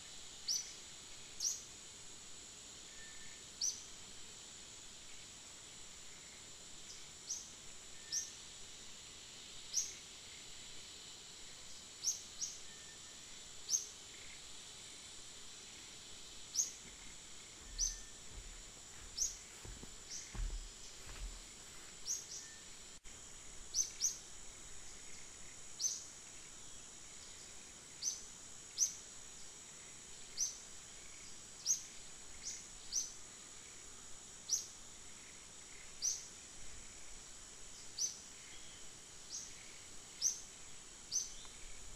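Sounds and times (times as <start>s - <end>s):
insect drone: 0.0s - 41.9s
bird chirps: 16.6s - 19.4s
low thumps: 16.8s - 21.5s.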